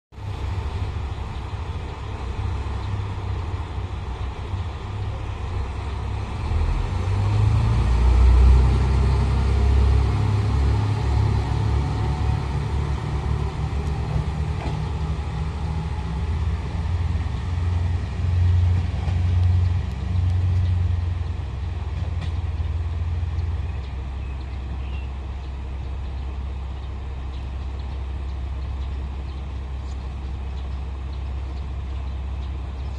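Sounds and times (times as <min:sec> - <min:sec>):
diesel railcar idling: 0:00.1 - 0:32.9
diesel railcar throttling up: 0:00.1 - 0:32.9.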